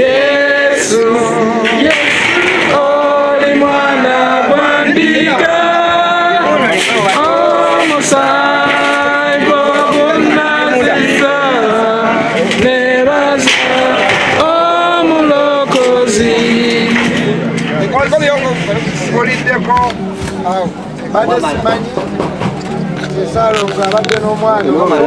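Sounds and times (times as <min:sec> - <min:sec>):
group of voices singing: 0:00.0 - 0:17.9.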